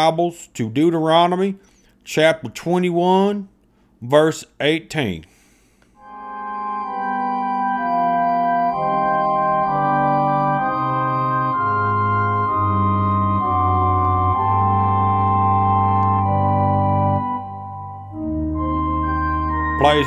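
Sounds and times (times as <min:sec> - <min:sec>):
organ playing slow chords: 0:06.0 - 0:20.0.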